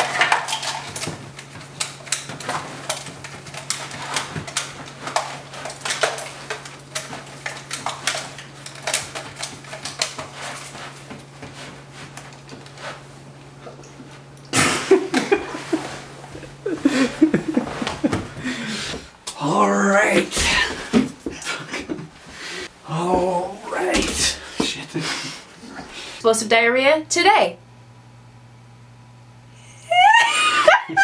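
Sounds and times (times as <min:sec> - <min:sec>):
steady low hum: 0:00.0 - 0:30.8
people laughing: 0:14.7 - 0:18.7, 0:29.9 - 0:31.0.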